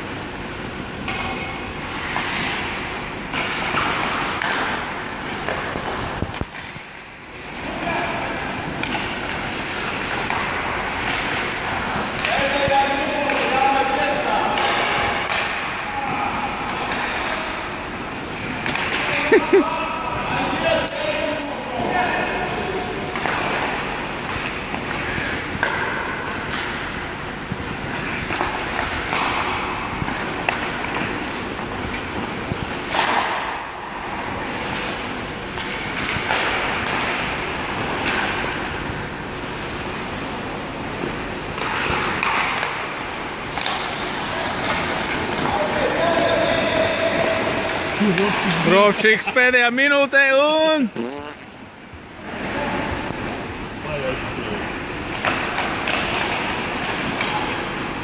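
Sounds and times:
hockey stick hitting puck: 3.3 - 6.8, 8.6 - 13.6, 14.4 - 15.6, 18.6 - 19.1, 23.1 - 26.9, 27.9 - 32.1, 32.7 - 33.6, 35.5 - 38.4, 41.6 - 45.6
skates scraping on ice: 8.4 - 13.4
sticks clacking on puck: 24.3 - 27.0, 27.7 - 33.5, 41.6 - 45.6.

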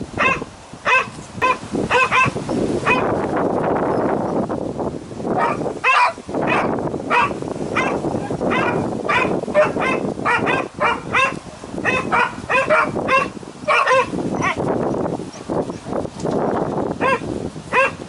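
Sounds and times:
dog barking: 0.2 - 3.1, 5.4 - 14.6, 17.0 - 18.0.

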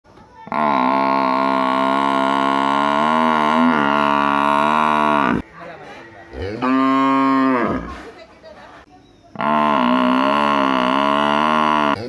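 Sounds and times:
cow mooing: 0.5 - 5.4, 6.3 - 8.0, 9.4 - 12.0
water buffalo bellowing: 0.5 - 5.4, 9.4 - 12.0.

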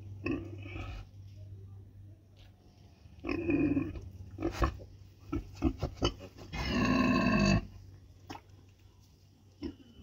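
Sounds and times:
pigs grunting: 3.2 - 7.8.

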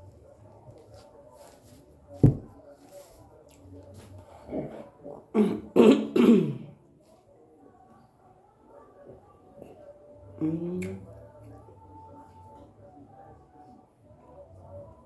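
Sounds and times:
woman coughing: 5.4 - 6.7.

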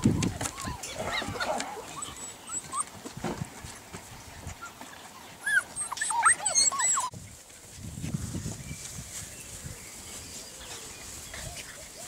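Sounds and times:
puppies whimpering and yelping: 0.0 - 3.1, 4.5 - 7.1.

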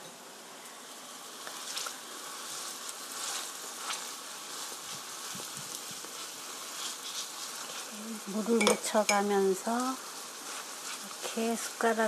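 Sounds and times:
oil sizzling in a frying pan: 0.0 - 12.0
spoons scraping and tapping: 8.5 - 9.3.

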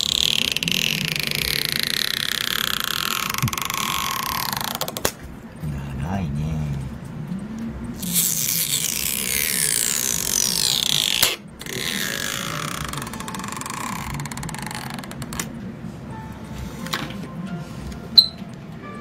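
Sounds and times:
adhesive strip creaking squeal: 0.0 - 5.0, 8.0 - 15.5.

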